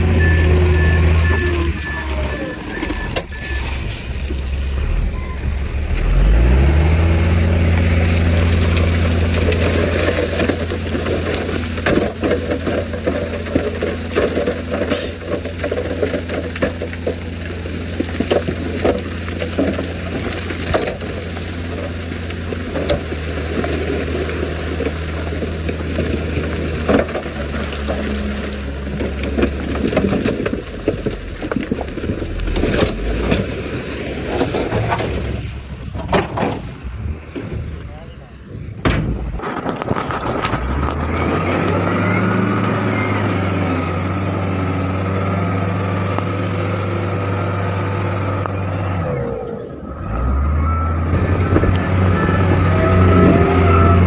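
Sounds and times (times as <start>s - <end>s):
heavy diesel engine revving: 0.0s - 11.8s, 40.6s - 54.0s
rock knocking and crunching: 7.7s - 36.7s, 38.8s - 41.8s.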